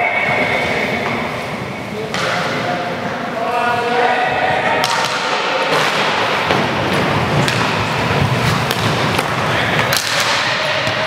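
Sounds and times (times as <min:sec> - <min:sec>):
hockey sticks clacking: 0:00.0 - 0:03.9, 0:04.7 - 0:11.0
skate wheels rumbling on wood floor: 0:05.7 - 0:11.0.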